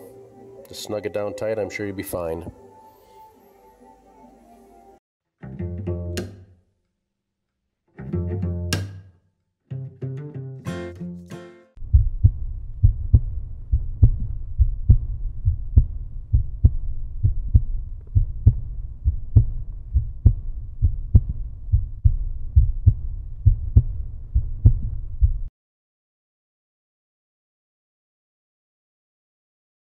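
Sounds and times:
low thudding heartbeat pulse: 11.8 - 25.5.

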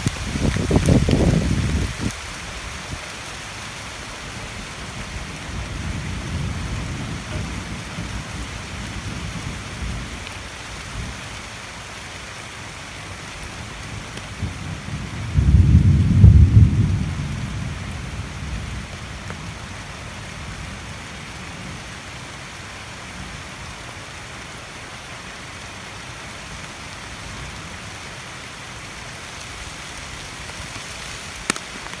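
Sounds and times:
rain on foliage: 0.0 - 32.0.

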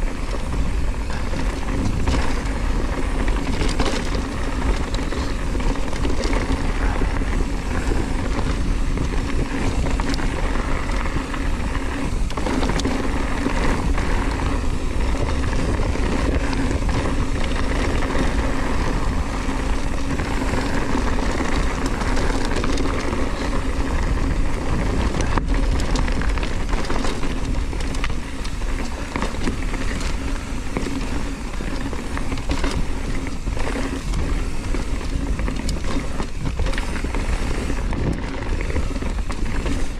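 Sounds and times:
bike rattling and clicking: 0.0 - 39.9
tyres rushing on loose gravel: 0.0 - 39.9.

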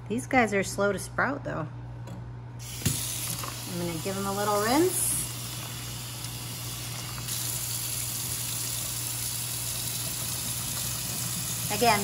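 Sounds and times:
faucet water running: 2.6 - 12.0
water splashing into a sink: 2.6 - 12.0.

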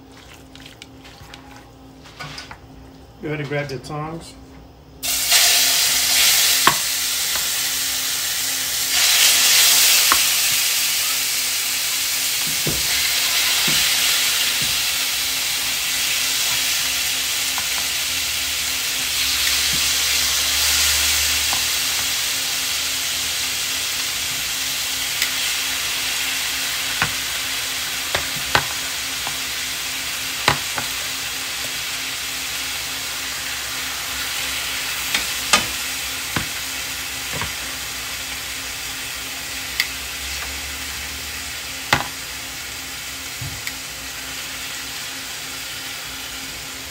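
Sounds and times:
chicken sizzling in frying pan: 5.0 - 46.9.

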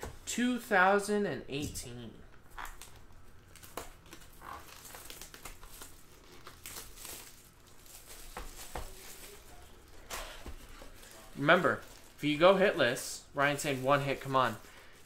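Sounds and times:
plastic wrapping crinkling and tearing: 2.5 - 15.0.

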